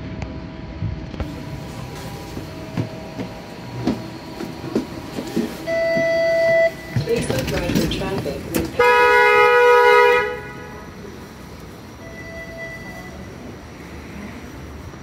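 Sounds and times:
streetcar rumbling on rails: 0.0s - 15.0s
loud steady beep: 5.6s - 7.1s, 12.0s - 13.4s.

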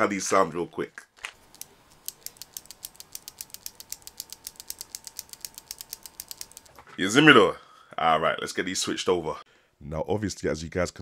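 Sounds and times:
mechanical keyboard clicking: 1.4s - 6.8s.

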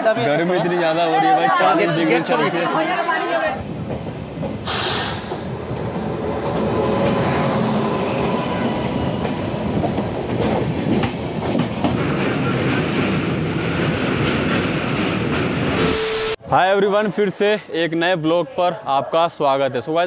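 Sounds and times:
train wheels rolling on track: 2.3s - 15.8s
short hiss: 4.7s - 5.5s.

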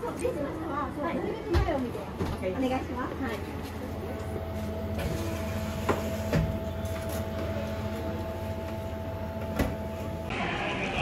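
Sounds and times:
steady whine: 2.8s - 11.0s.

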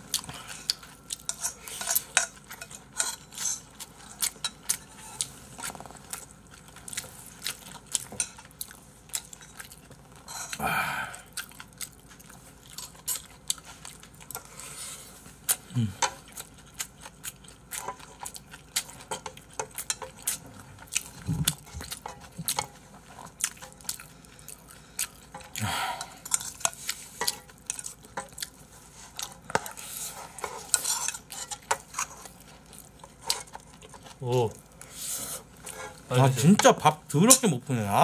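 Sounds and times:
spatula scraping metal frying pan: 30.0s - 32.1s.

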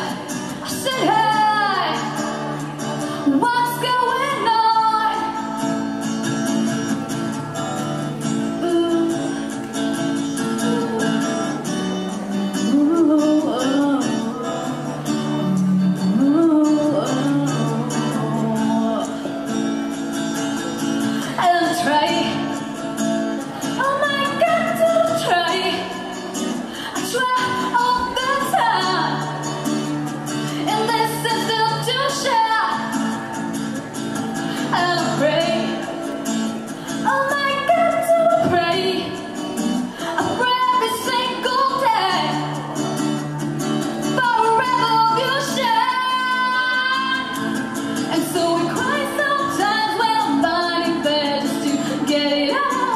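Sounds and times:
woman singing: 0.0s - 5.8s, 8.3s - 20.1s, 20.8s - 33.2s, 34.4s - 43.0s, 44.0s - 52.9s
acoustic guitar chords: 0.0s - 52.9s.

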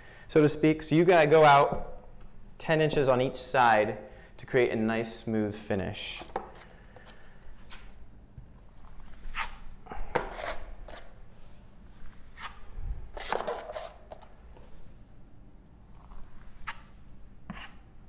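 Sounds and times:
taping knife scraping metal pan: 9.3s - 11.1s, 13.1s - 14.2s.

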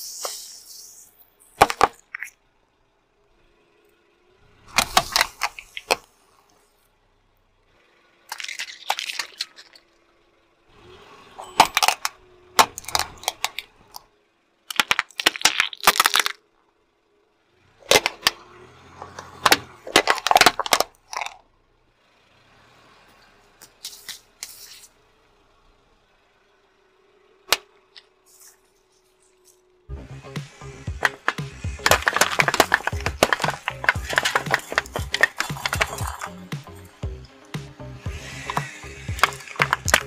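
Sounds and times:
tyre crushing plastic objects: 1.6s - 2.3s, 4.8s - 6.1s, 8.3s - 9.9s, 11.4s - 14.0s, 14.7s - 16.4s, 17.8s - 18.4s, 19.0s - 21.4s, 30.9s - 37.2s, 38.0s - 40.0s.

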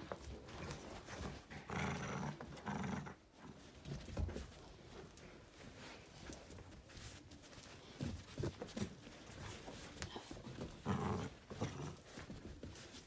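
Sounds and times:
dog growling in play: 1.2s - 3.3s, 10.6s - 12.2s.

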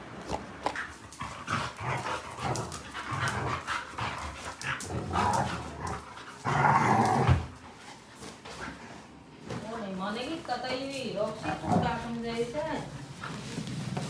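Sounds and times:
dogs play-fighting vocalizing: 0.5s - 9.2s.

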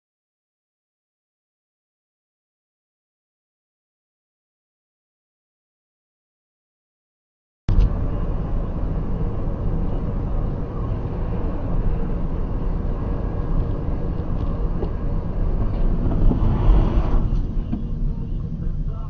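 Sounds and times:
car driving at highway speed: 7.7s - 19.0s.

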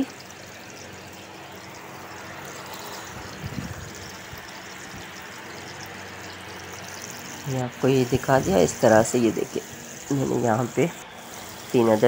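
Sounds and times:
kebab sizzling in oil: 0.0s - 12.0s.

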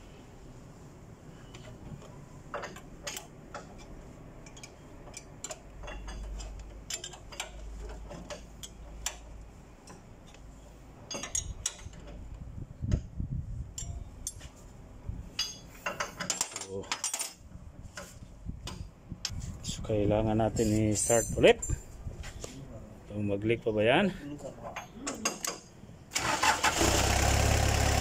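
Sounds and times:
spanner clicking on metal: 2.6s - 10.4s, 11.1s - 12.2s, 13.7s - 14.4s.

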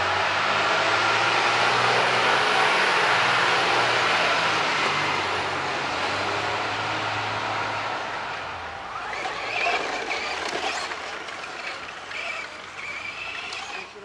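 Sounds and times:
toy truck motor whirring: 8.9s - 14.0s.

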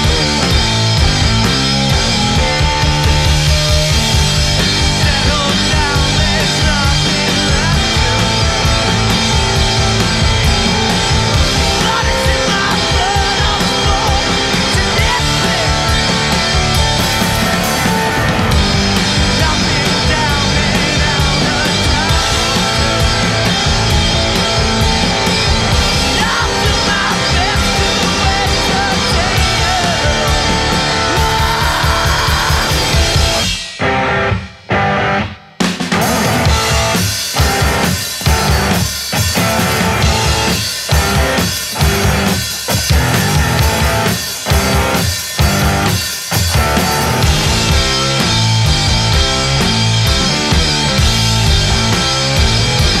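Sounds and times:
drum kit with cymbals: 0.0s - 34.7s, 35.3s - 53.0s
electric guitar: 0.0s - 53.0s
man singing: 4.6s - 33.4s.

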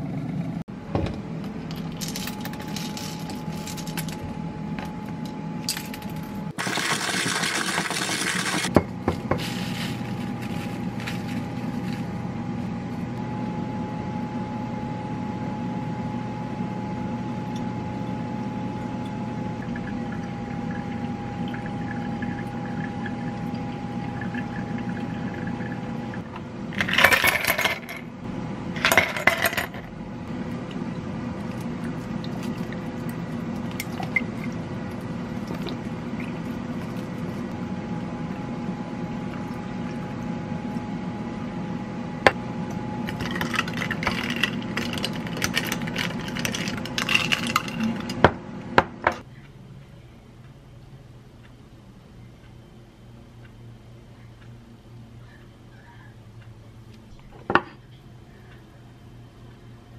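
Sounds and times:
low hum: 0.0s - 6.6s, 8.6s - 59.9s
coffee beans rattling into grinder: 6.6s - 8.7s, 9.3s - 12.1s, 26.8s - 28.0s, 43.1s - 48.2s
quiet pouring: 31.5s - 37.5s
ice cubes clattering into glass: 43.1s - 48.1s.

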